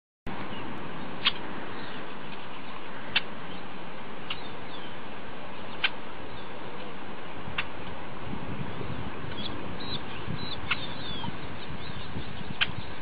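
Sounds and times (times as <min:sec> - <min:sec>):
steady outdoor hiss: 0:00.3 - 0:13.0
sharp bird chirps: 0:09.3 - 0:13.0.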